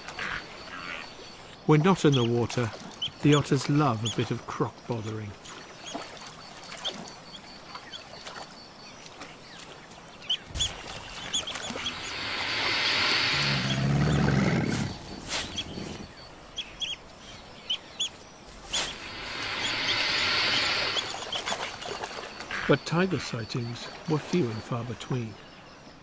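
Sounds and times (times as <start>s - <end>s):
otters chirping: 0.0s - 25.8s
hissing growl: 11.7s - 16.2s, 18.7s - 21.5s.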